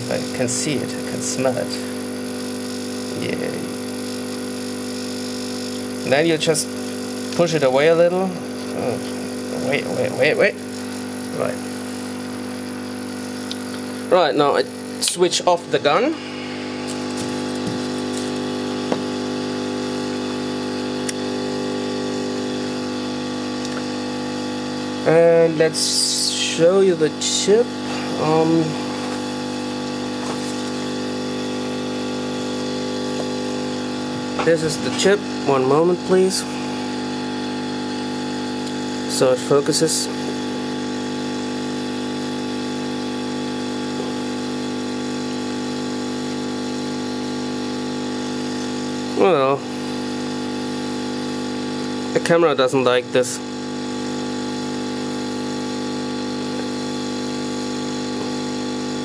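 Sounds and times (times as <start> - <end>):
blower humming: 0.0 - 59.0
air hiss: 15.8 - 17.9.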